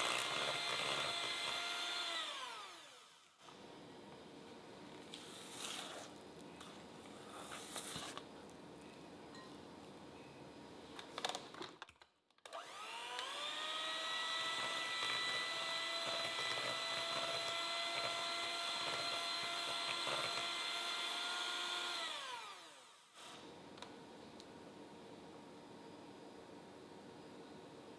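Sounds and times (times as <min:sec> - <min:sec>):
electric hand mixer whining: 0:00.0 - 0:03.3, 0:12.5 - 0:23.0.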